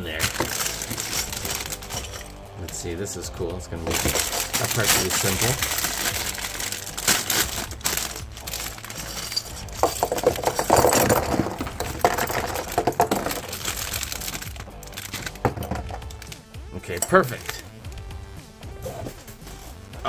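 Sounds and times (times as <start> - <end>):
plastic bag crinkling: 0.0 - 2.4, 3.8 - 16.4
plastic bricks clattering on table: 7.0 - 16.3.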